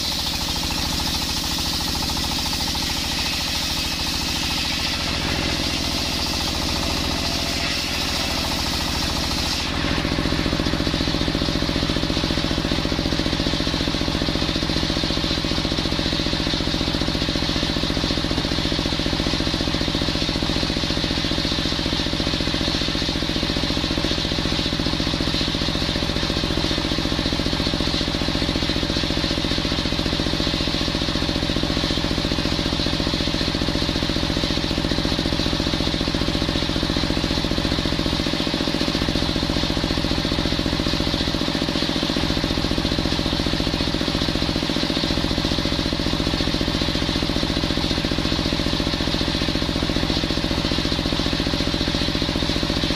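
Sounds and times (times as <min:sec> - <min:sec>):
circular saw cutting wood: 0:00.0 - 0:15.3
engine running: 0:00.0 - 0:52.9.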